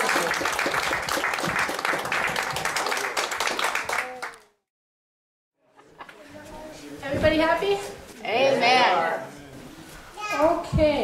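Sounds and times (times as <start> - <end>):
audience applauding: 0.0 - 4.5.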